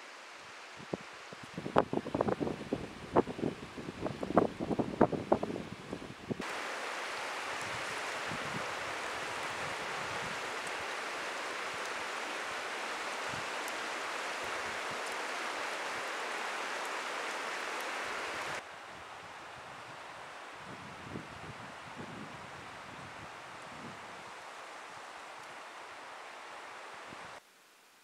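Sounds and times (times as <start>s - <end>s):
fire crackling: 6.3s - 18.6s
campfire flames hissing: 6.3s - 27.4s.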